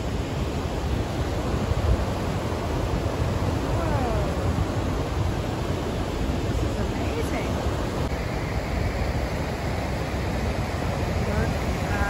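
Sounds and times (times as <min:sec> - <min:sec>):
rapids rushing: 0:00.0 - 0:12.0
wind buffeting microphone: 0:00.0 - 0:12.0.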